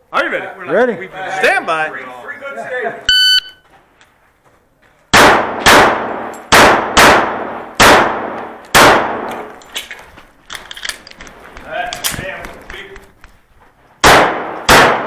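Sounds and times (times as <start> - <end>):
shot timer beep: 3.1 - 3.6
pistol shots: 5.1 - 9.5, 14.0 - 15.0.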